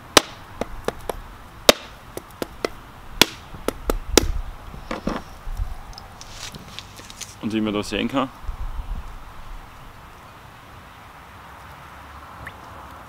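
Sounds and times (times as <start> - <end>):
knife striking coconut: 0.2 - 4.4.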